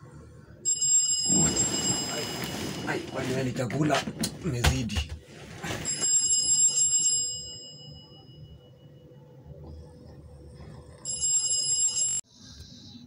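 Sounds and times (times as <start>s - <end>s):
bell-like alarm ringtone: 0.6s - 3.0s, 5.8s - 9.2s, 11.0s - 12.3s.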